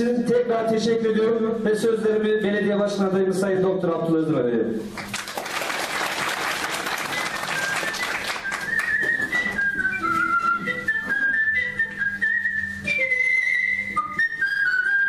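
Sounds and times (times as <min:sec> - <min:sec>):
audience applauding: 0:05.0 - 0:09.5.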